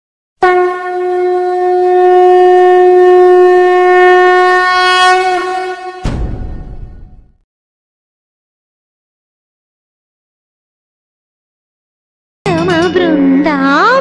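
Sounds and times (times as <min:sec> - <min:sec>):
conch shell blown: 0:00.4 - 0:06.2
deep boom: 0:06.0 - 0:07.4.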